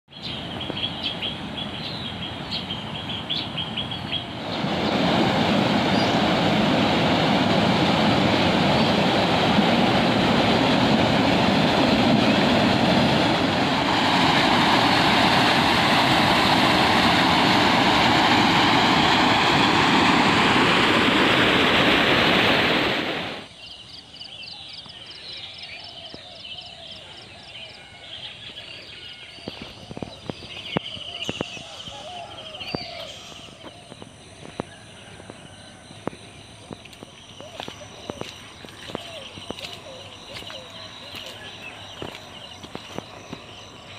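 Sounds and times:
water rushing over weir: 0:12.2 - 0:23.5.

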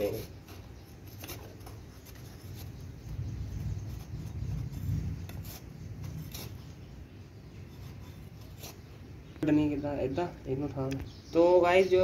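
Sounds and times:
metal tool scraping soil: 0:00.0 - 0:06.8, 0:07.7 - 0:09.0.

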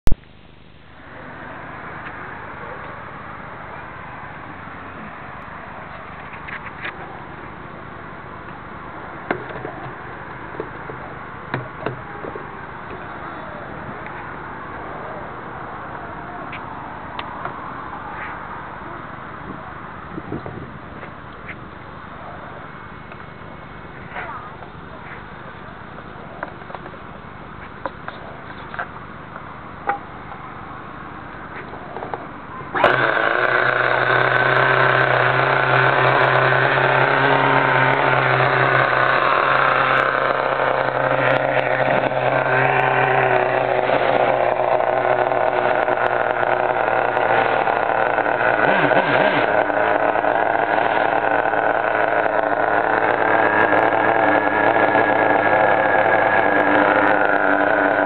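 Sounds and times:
nitro engine idling loudly: 0:30.8 - 0:58.0.

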